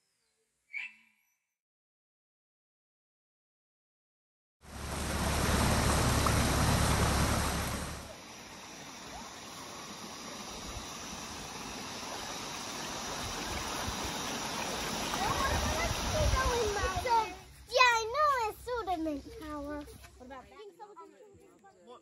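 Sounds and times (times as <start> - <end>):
low rumble on microphone: 4.7 - 8.1
creek water running over rocks: 4.7 - 17.6.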